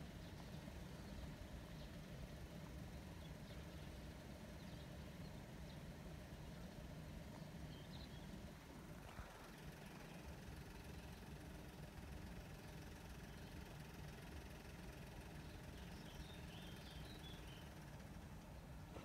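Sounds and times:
faint bird chirps: 7.3 - 11.8, 12.4 - 19.0.

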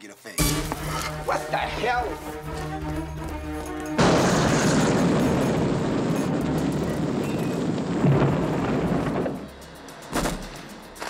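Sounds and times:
held music chord: 0.4 - 4.2
boom: 4.0 - 9.5
loud explosion blast: 4.0 - 9.5
rush of fire and debris: 4.0 - 10.6.

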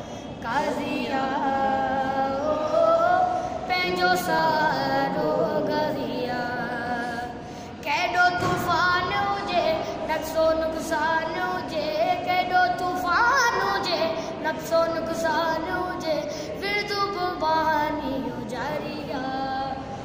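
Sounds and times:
boy singing unaccompanied: 0.4 - 20.0.

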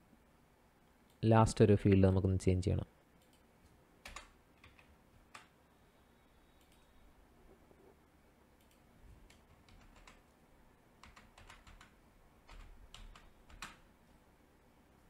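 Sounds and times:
keyboard keystrokes: 4.0 - 5.5, 8.6 - 10.2, 11.0 - 11.9, 12.5 - 13.8.

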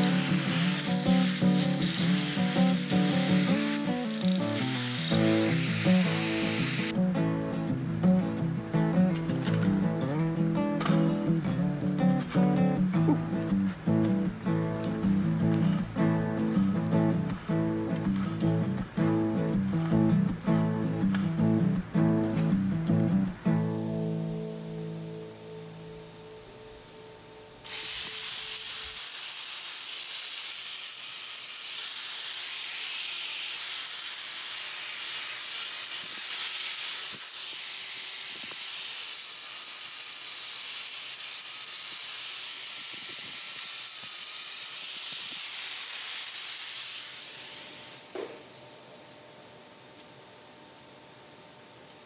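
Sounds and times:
angle grinder grinding steel: 0.0 - 7.0, 27.7 - 49.2.

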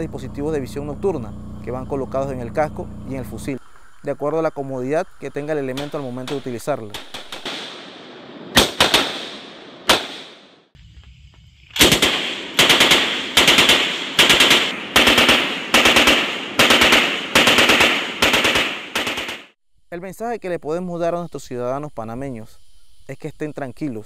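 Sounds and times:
single gunshots: 5.7 - 10.7, 11.8 - 19.6
machine gun bursts: 11.8 - 19.5.

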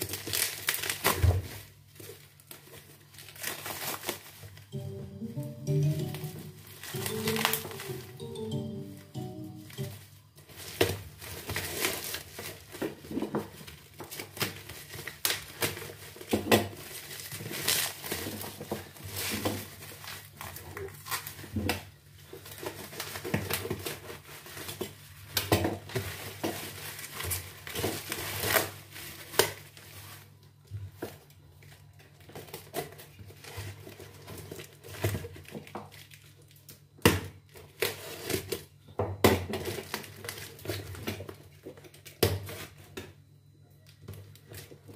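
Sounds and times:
plastic bag crinkling: 0.0 - 4.6.

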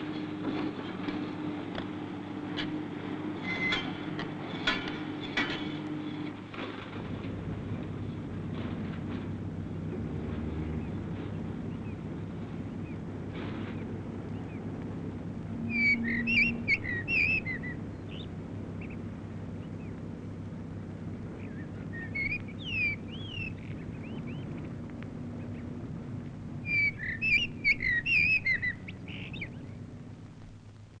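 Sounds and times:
low background hum: 0.0 - 31.0
songbird chirping: 10.4 - 30.8.

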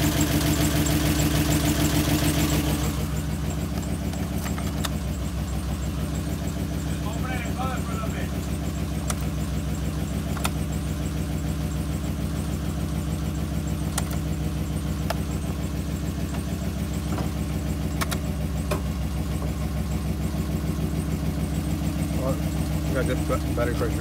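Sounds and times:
engine idling: 0.0 - 24.0.

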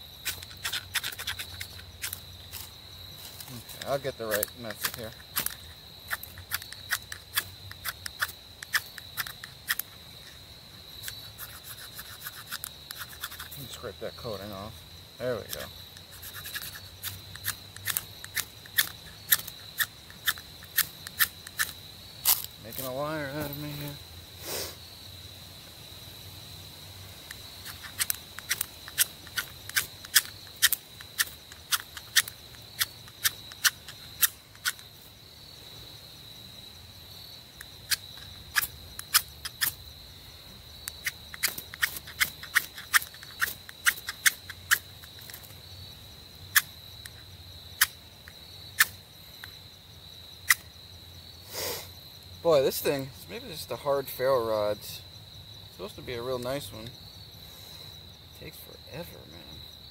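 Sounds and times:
high insect drone: 0.0 - 59.9
striker scraping ferrocerium rod: 11.0 - 13.6, 15.5 - 23.6, 41.0 - 45.4.

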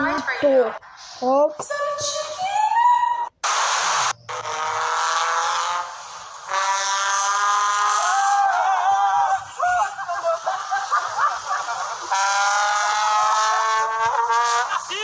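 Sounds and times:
trumpet blaring: 6.5 - 8.2, 11.9 - 15.0.

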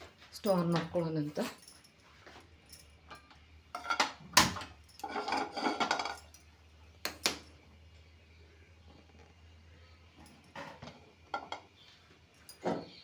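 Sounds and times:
frying pan clattering on stove grate: 3.7 - 6.3, 10.5 - 11.7.

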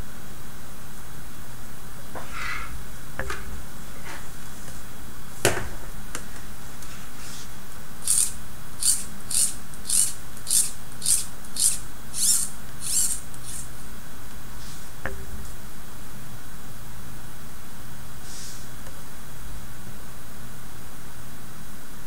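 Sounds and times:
string rubbing through pulleys: 8.0 - 13.7.

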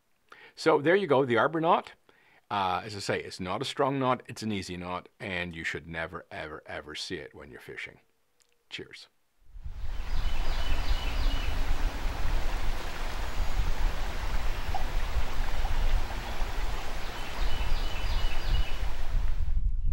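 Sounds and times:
flowing water rushing: 9.6 - 19.4.

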